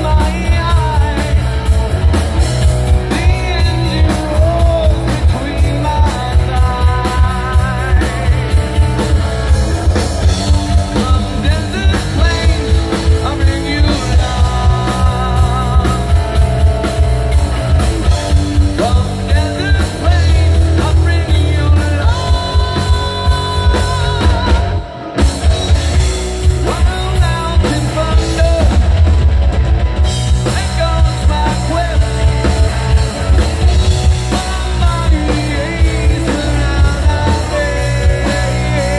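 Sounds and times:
person singing: 0.0s - 1.8s, 2.9s - 9.2s, 9.9s - 16.7s, 18.6s - 25.0s, 26.6s - 28.8s, 30.4s - 38.9s
drum kit: 0.0s - 38.9s
electric guitars: 0.0s - 38.9s.

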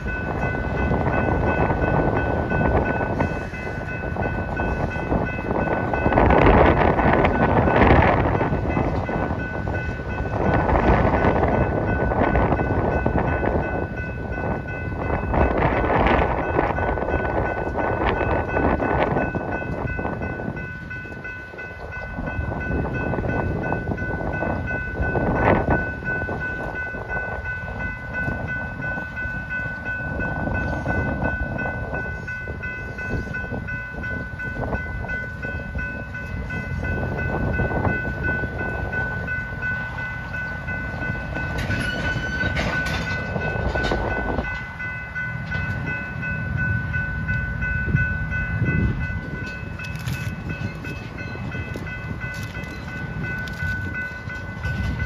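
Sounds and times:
freight train rumbling past: 0.0s - 55.0s
train coupler clacks and knocks: 40.9s - 44.8s.

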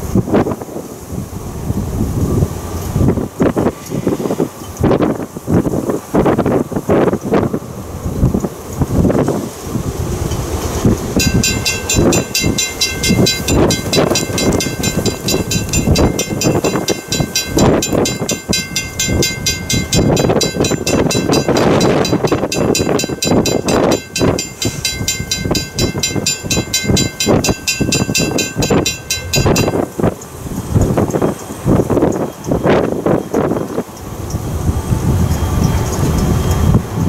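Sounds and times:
steam train working: 0.0s - 37.0s
railroad bell ringing rapidly: 10.2s - 37.0s.

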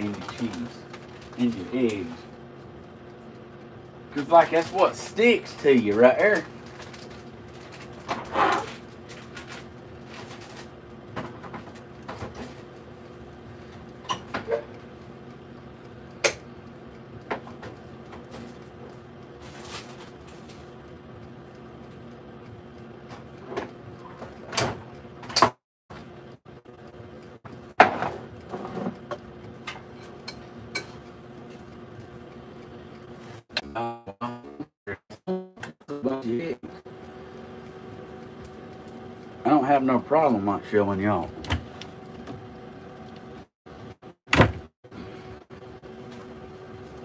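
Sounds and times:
steady low hum: 0.0s - 25.4s.

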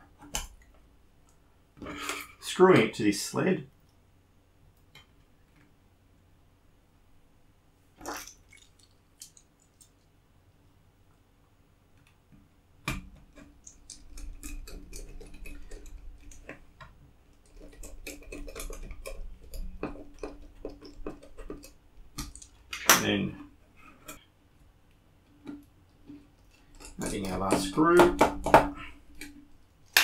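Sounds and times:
knock: 28.0s - 28.8s.

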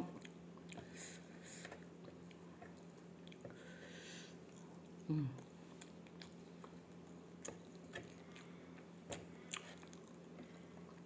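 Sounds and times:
person chewing food: 0.0s - 11.0s.

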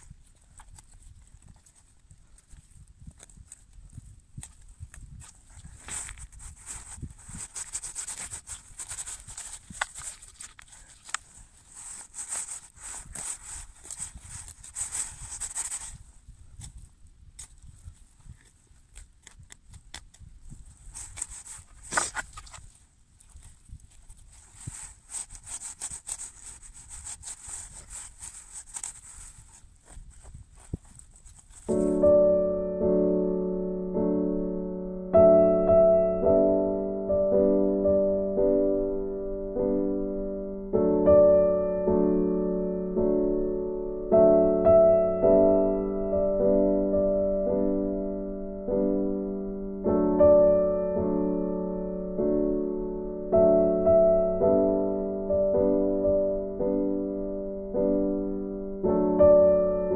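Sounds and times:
knife sawing and scraping fish: 5.8s - 16.0s, 24.1s - 30.4s
slow piano music: 31.7s - 59.9s.

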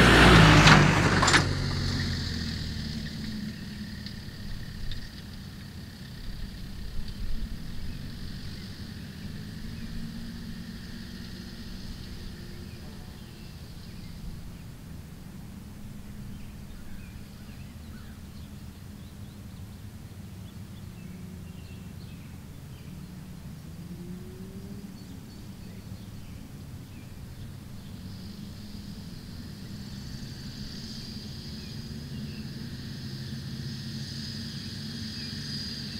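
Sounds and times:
distant engine hum: 0.0s - 35.9s
high insect buzz: 1.6s - 14.4s, 27.7s - 35.9s
bird chirps: 7.5s - 14.8s, 16.1s - 35.9s.

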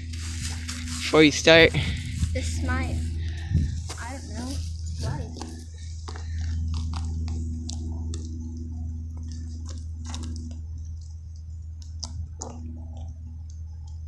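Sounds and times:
low rumble: 0.0s - 14.0s.

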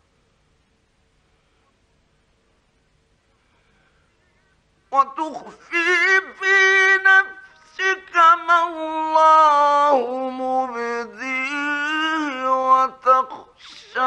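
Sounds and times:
man chanting melodically: 4.9s - 14.0s.

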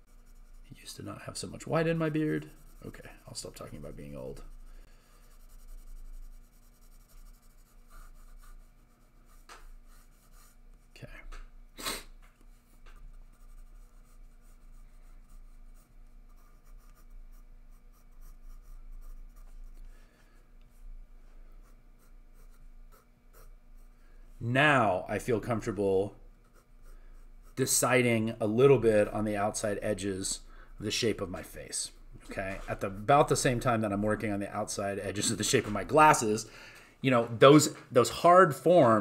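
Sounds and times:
pencil scratching on paper: 0.0s - 10.7s, 12.6s - 19.8s, 21.6s - 23.9s, 26.4s - 27.7s.

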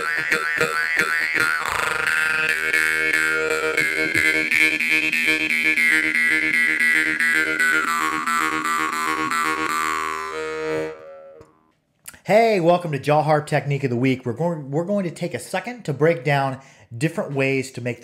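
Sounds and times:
jaw harp twanging drone: 0.0s - 11.5s.

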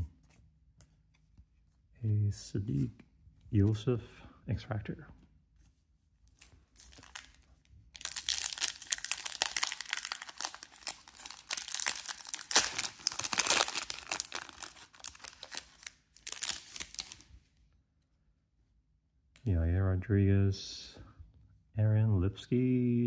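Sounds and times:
plastic wrapper crinkling and tearing: 6.3s - 17.3s.

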